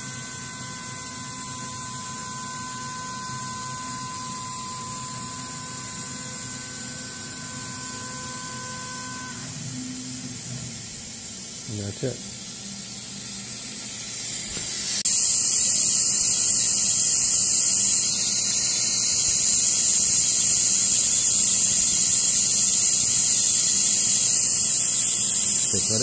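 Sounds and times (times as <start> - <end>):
compressed air hissing: 10.8 - 26.0
router spindle running: 15.1 - 26.0.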